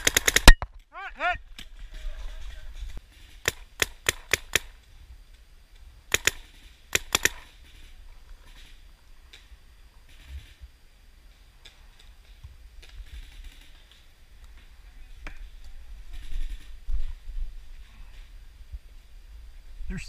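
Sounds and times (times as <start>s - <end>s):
paintball marker shots: 0.0s - 0.7s, 3.4s - 4.7s, 6.1s - 7.5s.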